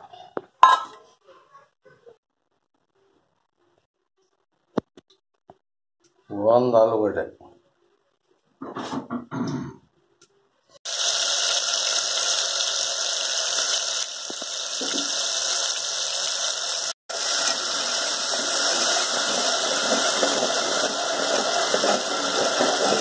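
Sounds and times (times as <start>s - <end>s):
paste sizzling in hot oil: 10.9s - 23.0s.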